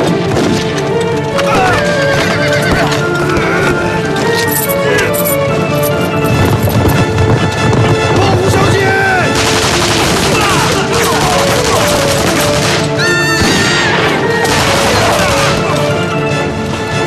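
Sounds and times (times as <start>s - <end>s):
dramatic music: 0.0s - 17.0s
people shouting: 1.3s - 5.2s, 8.2s - 16.3s
gunfire crackling: 6.3s - 16.0s
person screaming: 13.0s - 13.9s.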